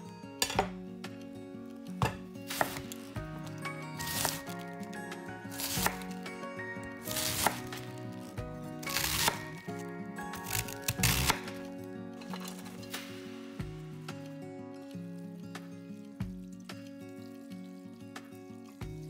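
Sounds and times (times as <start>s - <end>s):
background music: 0.0s - 19.0s
knife slicing cabbage: 2.0s - 4.7s, 5.4s - 6.3s, 7.0s - 11.7s.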